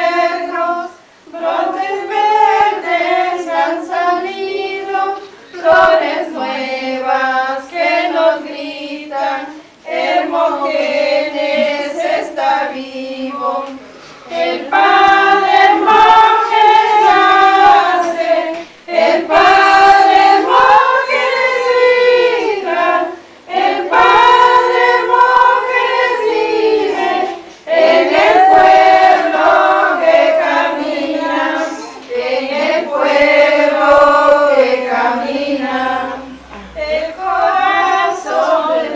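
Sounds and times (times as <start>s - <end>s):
women and girls singing a hymn: 0.0s - 38.9s.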